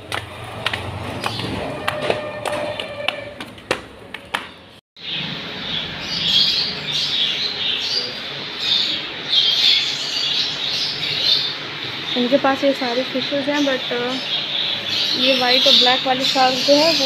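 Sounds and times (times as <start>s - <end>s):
footsteps on stairs: 0.0s - 4.6s
caged birds chirping: 0.8s - 3.3s, 4.4s - 17.0s.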